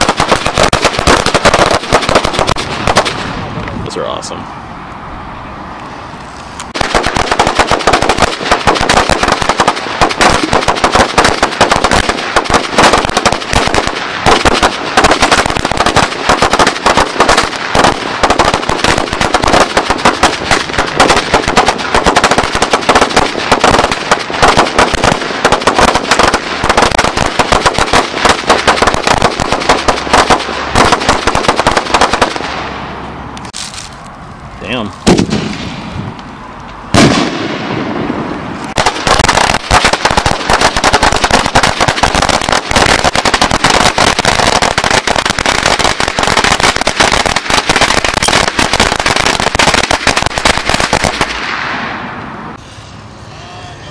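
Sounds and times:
firecracker string cracking: 0.0 - 3.8, 5.8 - 52.2
loud bang: 35.0 - 36.2, 36.9 - 39.7
rising whistle: 52.6 - 53.9.

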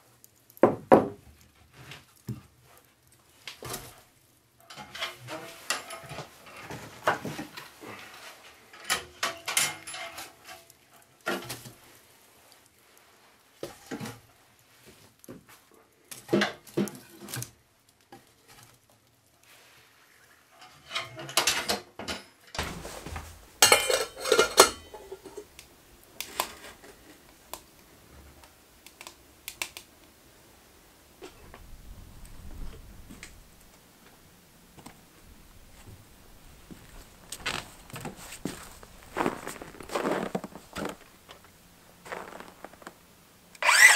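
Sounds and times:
metal pot and stove clanking: 4.7 - 7.3, 8.7 - 10.6, 20.6 - 25.6.

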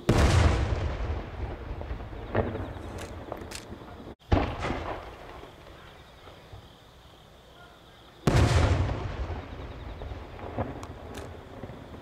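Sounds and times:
firework bang: 0.1 - 3.4, 4.2 - 5.4, 8.3 - 11.8.

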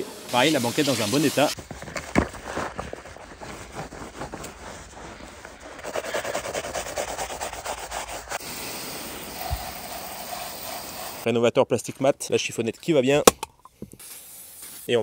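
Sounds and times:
brush scrubbing wet rubber mat: 0.4 - 1.7, 2.3 - 11.3.

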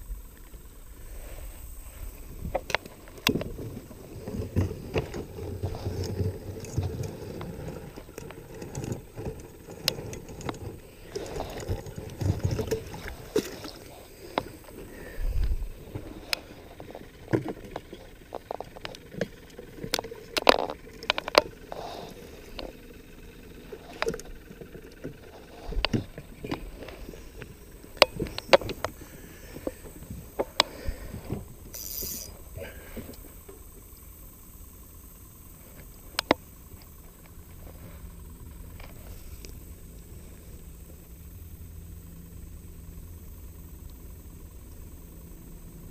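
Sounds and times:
clicks and knocks of gear: 15.4 - 21.9.

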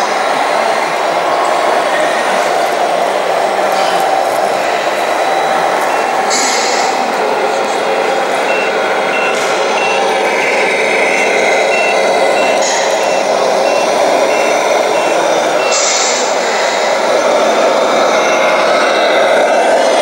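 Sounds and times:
steady background din: 0.0 - 20.0
reversing beeper: 4.6 - 20.0.

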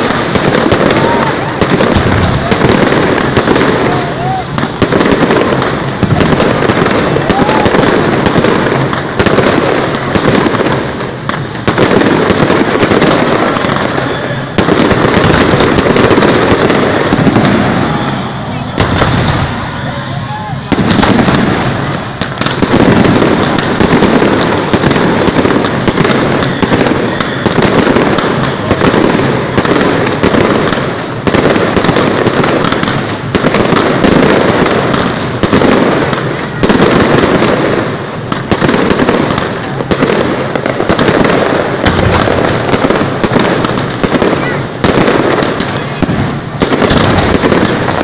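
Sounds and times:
fireworks bangs: 0.0 - 48.0
fireworks crackling: 0.0 - 48.0.

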